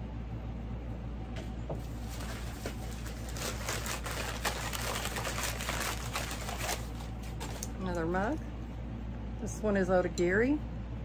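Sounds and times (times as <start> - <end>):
air conditioner and fans humming: 0.0 - 11.0
plastic wrapping crinkling: 1.8 - 8.0.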